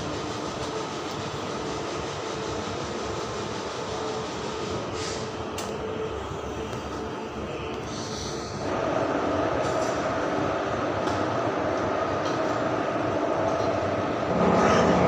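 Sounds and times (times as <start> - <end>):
brief high hiss: 5.0 - 5.3.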